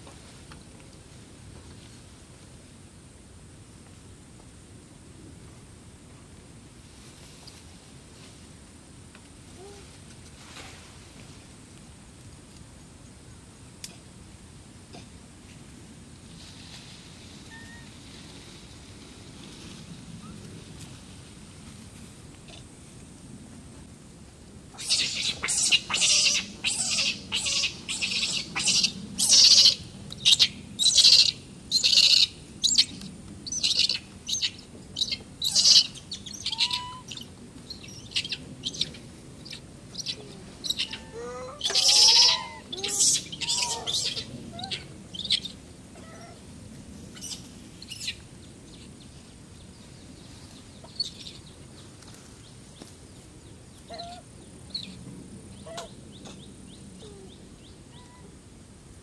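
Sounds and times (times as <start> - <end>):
macaques screaming: 24.8 - 32.8, 35.0 - 37.2, 40.0 - 44.8.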